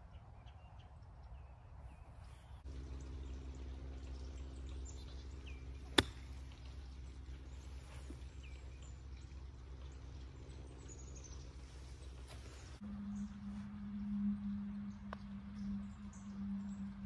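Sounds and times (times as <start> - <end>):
birds chirping: 0.0 - 13.4
low machine hum: 0.0 - 17.0
golf club striking ball: 5.5 - 6.9.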